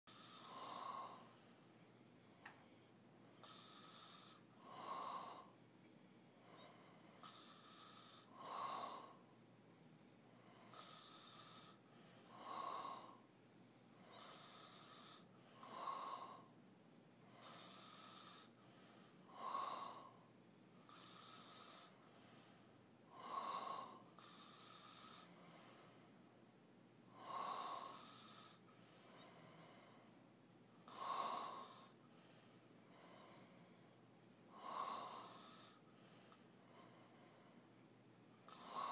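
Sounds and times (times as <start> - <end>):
soft breathing: 0.0 - 38.9
man snoring: 0.1 - 1.4, 3.4 - 5.5, 7.2 - 9.2, 10.7 - 13.2, 14.2 - 16.5, 17.4 - 18.6, 20.9 - 22.0, 23.2 - 25.4, 27.2 - 28.6, 30.8 - 32.0, 34.6 - 35.8, 38.5 - 38.9.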